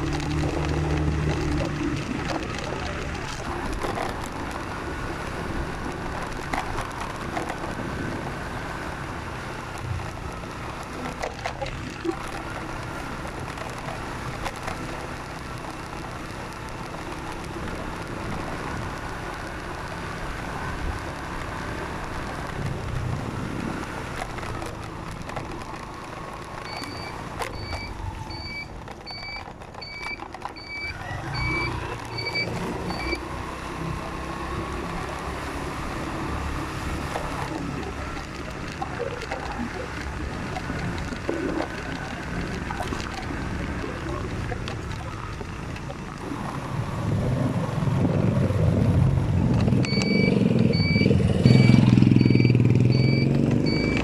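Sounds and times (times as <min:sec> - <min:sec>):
vehicle engine and road noise: 0:00.0 - 0:54.0
short high beeps: 0:26.7 - 0:33.2, 0:49.9 - 0:54.0.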